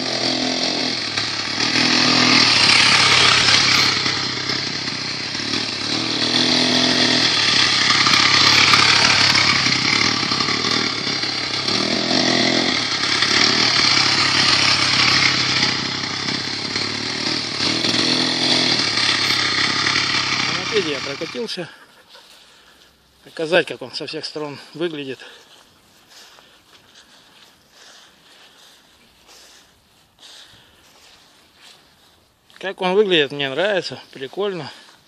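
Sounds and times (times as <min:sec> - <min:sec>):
moped two-stroke engine buzzing: 0:00.0 - 0:21.6.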